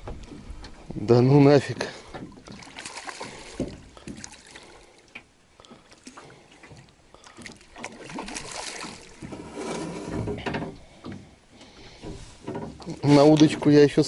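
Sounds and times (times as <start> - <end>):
small knocks on a boat: 0.0 - 0.9, 2.0 - 4.4, 9.0 - 14.0
water splashing: 1.1 - 11.0.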